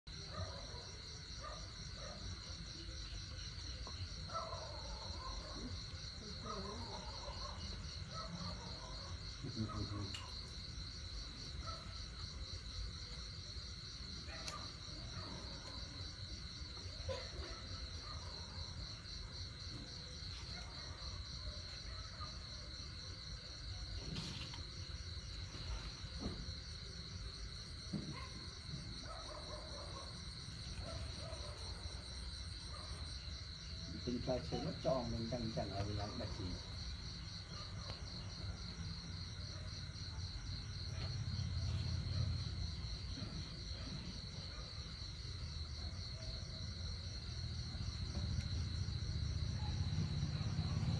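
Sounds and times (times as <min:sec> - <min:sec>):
crickets trilling: 0:00.1 - 0:50.9.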